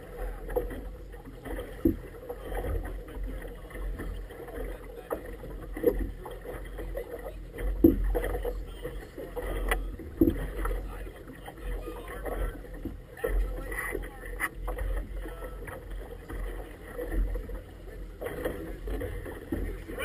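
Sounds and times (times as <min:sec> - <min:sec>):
water slapping inflatable boat: 0:00.0 - 0:20.0
waves thumping hull: 0:00.0 - 0:20.0.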